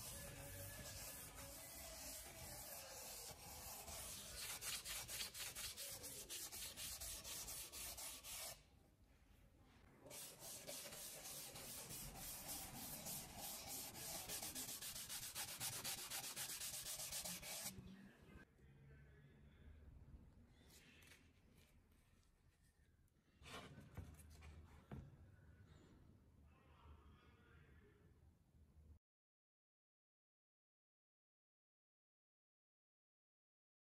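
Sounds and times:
wood being sanded by hand: 0.7s - 8.6s, 10.1s - 17.7s.

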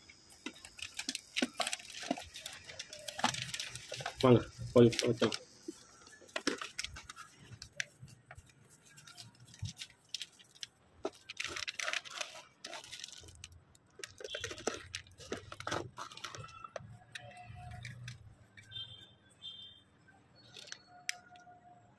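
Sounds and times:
plastic wrapper crinkling and tearing: 0.2s - 18.3s
clicks and knocks of handling: 4.9s - 18.7s.

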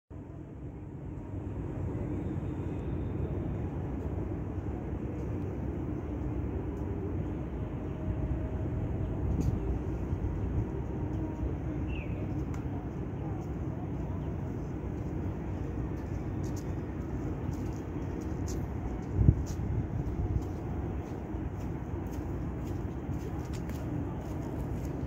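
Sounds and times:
distant city traffic hum: 0.1s - 25.0s
wind buffeting microphone: 5.7s - 25.0s.

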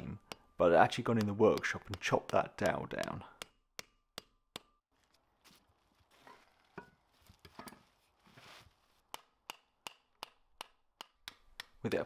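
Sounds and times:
hammer tapping metal: 0.0s - 4.8s
handling noise and soft knocks: 4.6s - 11.8s.

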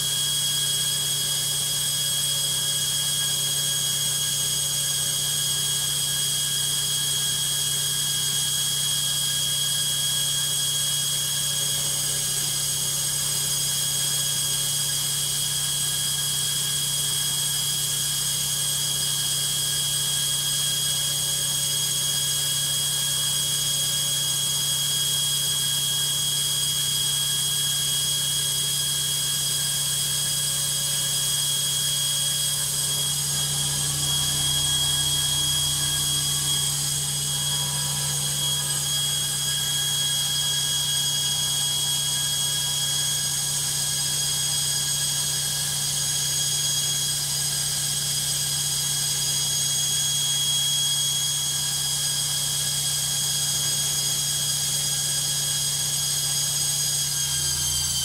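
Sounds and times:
washing machine spinning: 17.8s - 53.2s.

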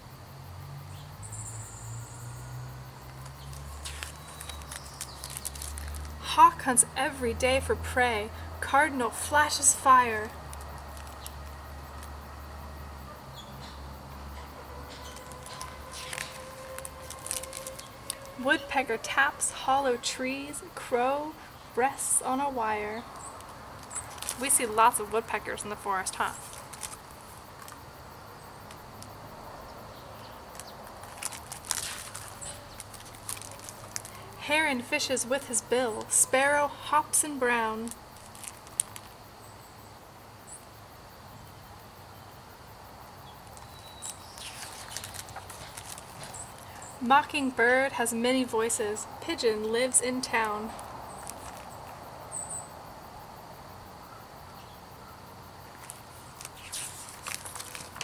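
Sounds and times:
outdoor background hiss: 0.0s - 58.0s
book pages rustling and turning: 3.1s - 6.2s, 14.8s - 18.6s, 23.2s - 25.1s, 26.2s - 27.8s, 30.5s - 34.3s, 37.8s - 39.2s, 43.5s - 46.9s, 50.4s - 52.0s, 55.7s - 58.0s.

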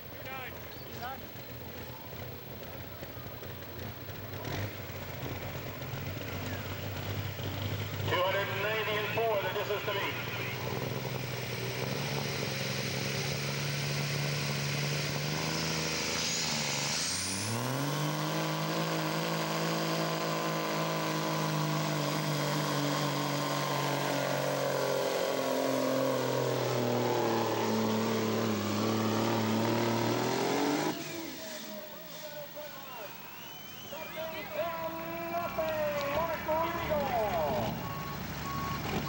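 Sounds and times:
truck diesel engine under throttle: 0.0s - 39.0s
high turbo whistle: 33.0s - 35.4s.

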